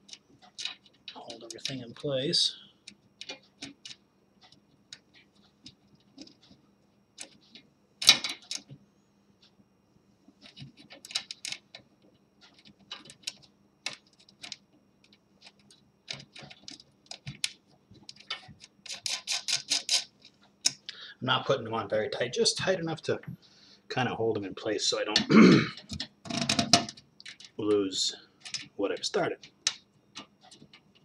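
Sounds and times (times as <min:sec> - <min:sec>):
metallic clicks of nuts threading: 0:28.4 - 0:31.0.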